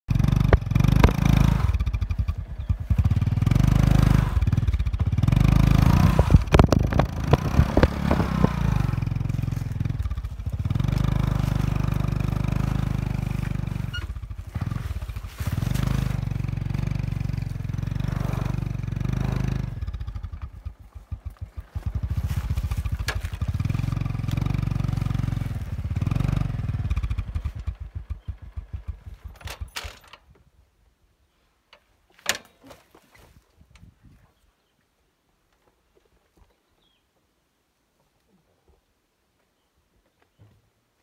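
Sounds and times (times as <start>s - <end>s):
motorcycle engine revving: 0.1s - 29.8s
tyre spinning in dirt: 0.5s - 27.8s
dirt clattering against bike: 5.8s - 18.5s, 20.1s - 26.2s.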